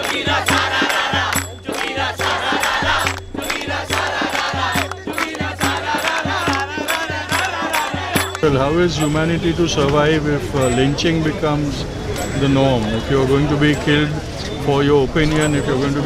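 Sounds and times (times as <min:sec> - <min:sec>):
rhythmic hand clapping: 0:00.0 - 0:09.2
crowd singing: 0:00.0 - 0:16.0.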